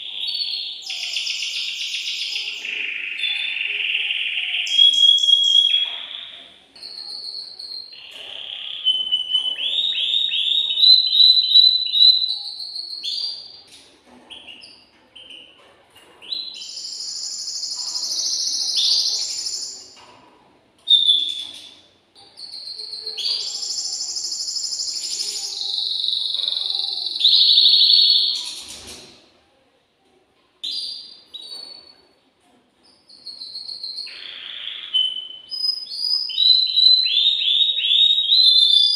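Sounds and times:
canary singing fast trills: 0.0 - 13.6, 16.3 - 20.0, 22.4 - 28.7.

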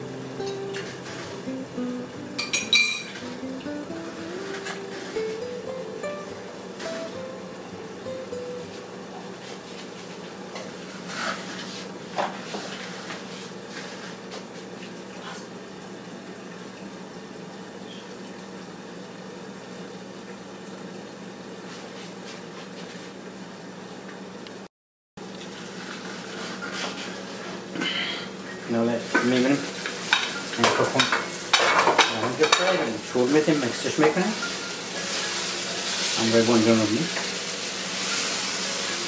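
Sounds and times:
food sizzling in covered pan: 0.0 - 14.2, 25.7 - 39.0.

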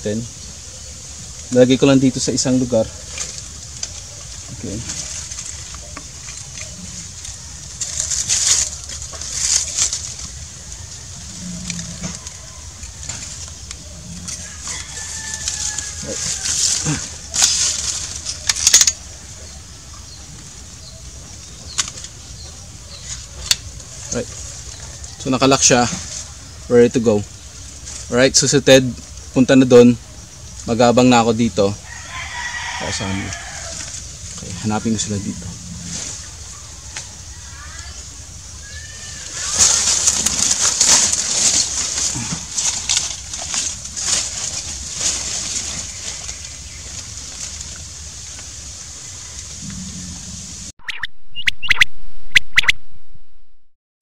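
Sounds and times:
rustling of leaves and fabric: 0.0 - 50.7.

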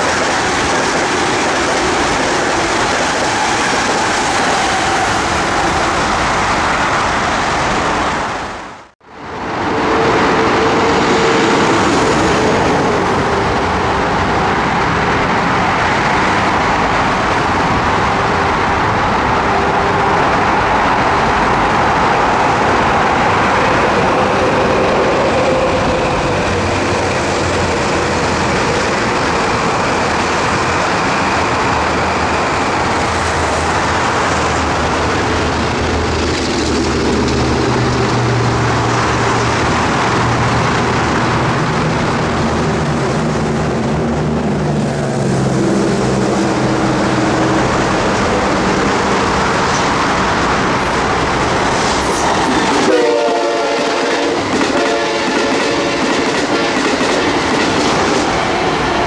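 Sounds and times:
train passing at speed: 0.0 - 59.0
train wheels on rails: 0.0 - 59.0
train horn: 52.1 - 57.0.

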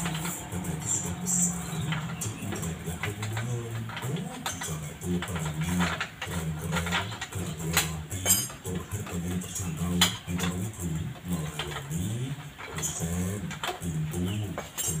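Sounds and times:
metal clinks and taps: 0.0 - 10.6, 14.5 - 15.0.

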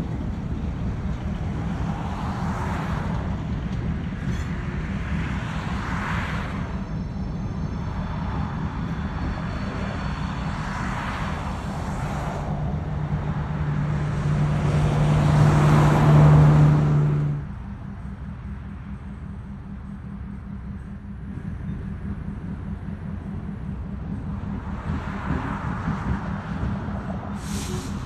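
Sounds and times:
diesel locomotive engine hum: 0.0 - 28.0
rushing noise: 23.4 - 28.0.

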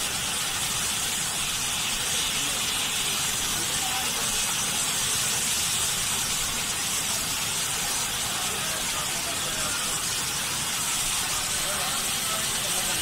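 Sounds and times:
steam venting hiss: 0.0 - 13.0.

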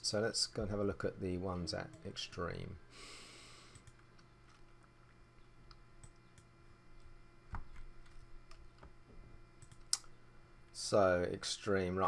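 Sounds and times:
low steady hum: 0.0 - 12.0
computer mouse clicks: 3.7 - 4.6, 9.6 - 10.1.

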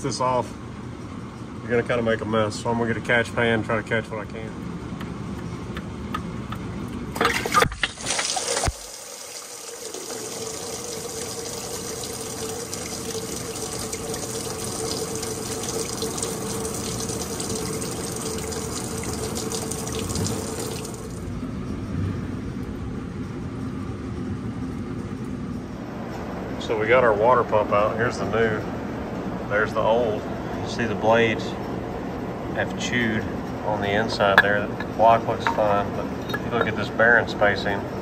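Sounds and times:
coolant splashing into pan: 7.1 - 21.2
tools and metal clattering: 34.1 - 36.8.

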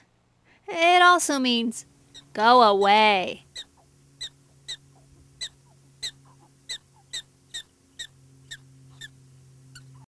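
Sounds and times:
prairie dog alarm chirps: 2.0 - 10.0.

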